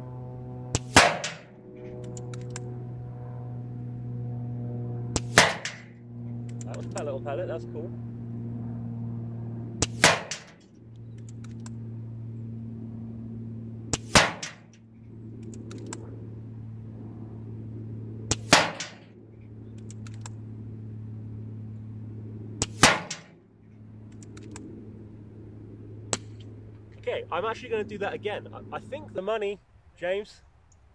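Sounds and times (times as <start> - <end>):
low hum: 0.0 - 30.9
air rifle shots: 0.7 - 2.6, 5.2 - 6.0, 9.8 - 10.7, 13.9 - 14.8, 18.3 - 19.1, 22.6 - 23.4
rifle clicks: 0.8 - 2.7, 9.8 - 11.8, 15.4 - 16.0, 19.7 - 20.4, 24.1 - 24.7
rifle being cycled: 1.2 - 2.6.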